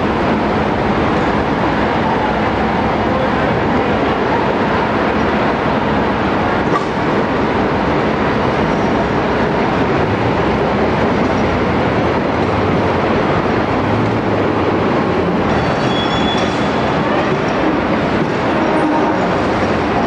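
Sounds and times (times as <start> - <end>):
loud rumbling noise: 0.0 - 20.0.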